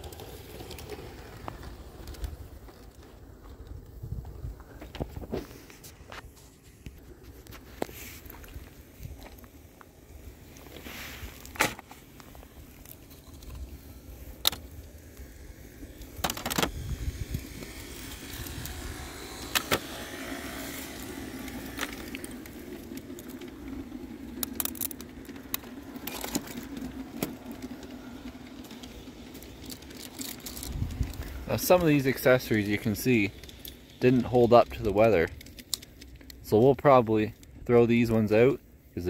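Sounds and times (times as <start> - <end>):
steady low hum: 0.0 - 39.0
plastic and wooden pieces clacking: 15.9 - 31.9, 32.5 - 36.4.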